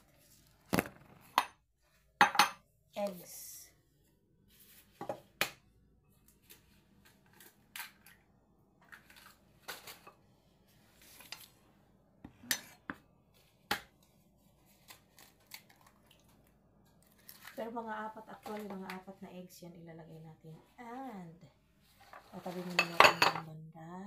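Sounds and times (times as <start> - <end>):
bowls being handled: 22.0 - 23.5.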